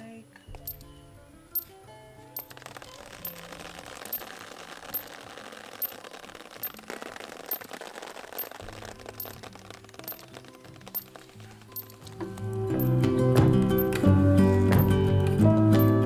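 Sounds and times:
liquid pouring from watering can: 0:02.4 - 0:12.4.

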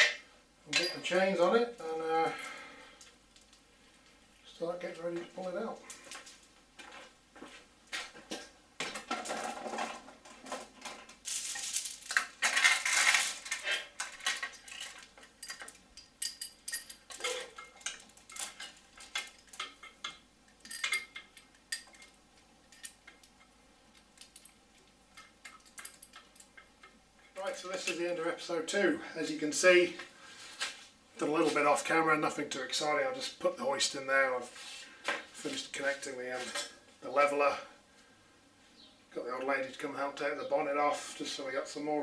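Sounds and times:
metal chain clinking and rattling: 0:00.0 - 0:03.6, 0:05.8 - 0:06.6, 0:08.8 - 0:28.3.

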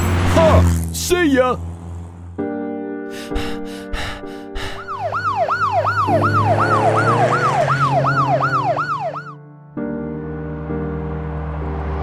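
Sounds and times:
cartoon police siren: 0:04.6 - 0:09.4.

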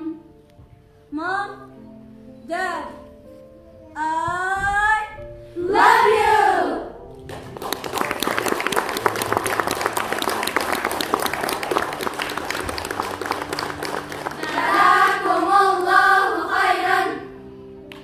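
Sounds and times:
girls' choir singing: 0:05.6 - 0:07.0, 0:13.5 - 0:17.4
audience applause: 0:07.3 - 0:14.8.

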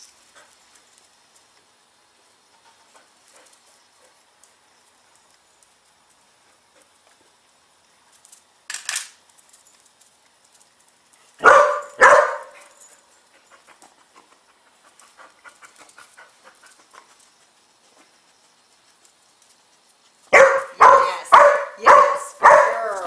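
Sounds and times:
dog barking: 0:11.4 - 0:12.7, 0:20.3 - 0:23.0.

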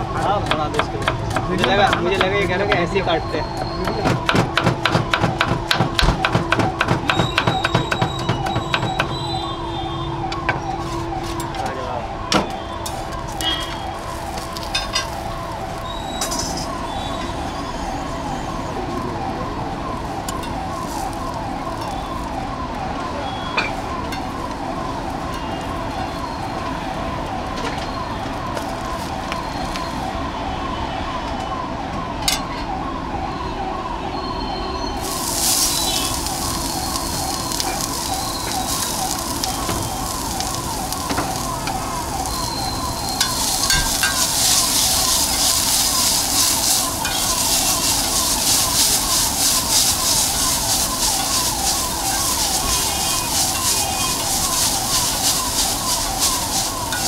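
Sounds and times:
onions sizzling on hot griddle: 0:00.0 - 0:09.8, 0:12.8 - 0:19.1, 0:20.0 - 0:22.4, 0:28.6 - 0:30.0, 0:34.9 - 0:57.0
electronic siren-like warble: 0:00.0 - 0:31.8, 0:32.4 - 0:57.0.

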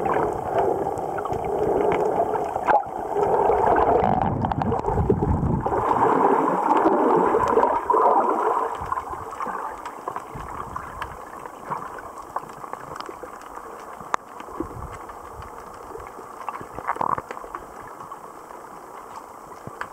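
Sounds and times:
water gurgling past microphone: 0:00.0 - 0:12.9
underwater clicks and snaps: 0:00.0 - 0:19.9.

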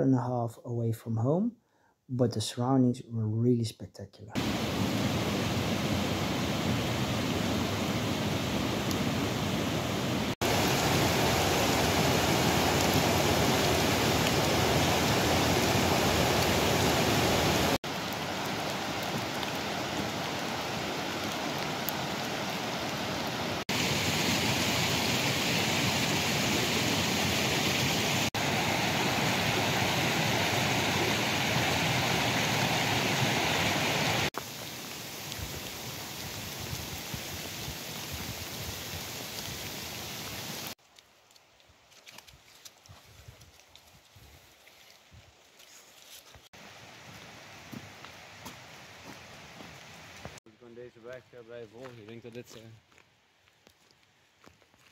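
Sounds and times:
stream rushing over rocks: 0:04.4 - 0:40.8.

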